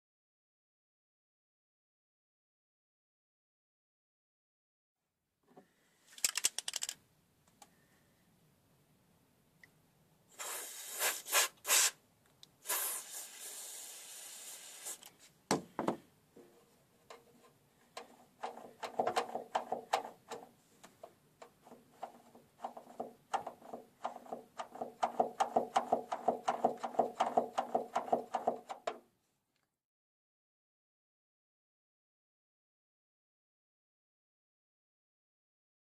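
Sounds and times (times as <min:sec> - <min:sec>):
rapid metallic clicking and rattling: 0:06.2 - 0:07.0, 0:18.0 - 0:20.5, 0:21.4 - 0:29.0
aerosol spray hissing: 0:10.3 - 0:12.0, 0:12.6 - 0:15.1.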